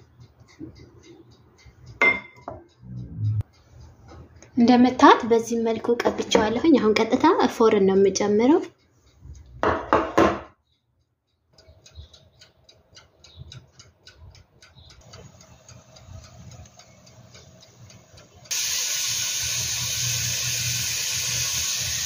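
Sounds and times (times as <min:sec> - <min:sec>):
oven ticking and crackling: 0:00.0 - 0:09.7, 0:11.3 - 0:22.0
loud steady hiss: 0:18.5 - 0:22.0.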